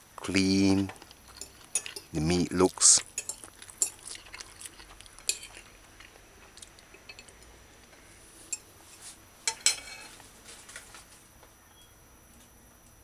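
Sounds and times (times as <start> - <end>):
fork clinking on a plate: 1.3 - 2.2, 3.2 - 4.4, 5.2 - 5.7, 9.5 - 10.1.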